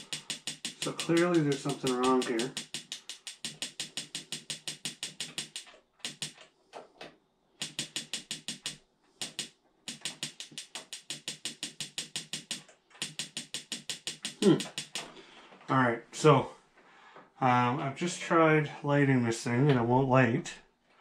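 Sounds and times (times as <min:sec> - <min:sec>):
heater igniter clicking rapidly: 0:00.0 - 0:06.4, 0:07.6 - 0:15.1.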